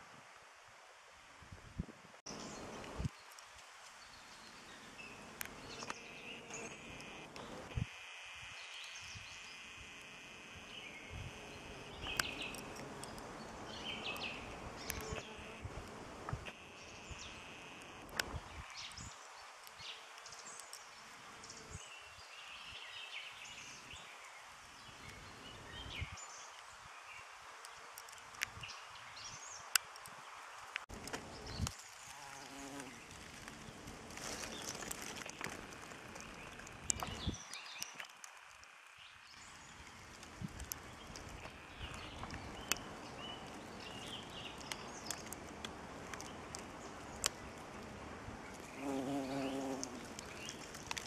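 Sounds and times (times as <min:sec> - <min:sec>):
bumblebee buzzing: 0:05.6 - 0:07.9, 0:32.0 - 0:33.2, 0:48.8 - 0:50.4
birds singing and chirping: 0:10.7 - 0:15.4, 0:34.4 - 0:45.4, 0:48.4 - 0:51.0
rustling: 0:30.9 - 0:38.8.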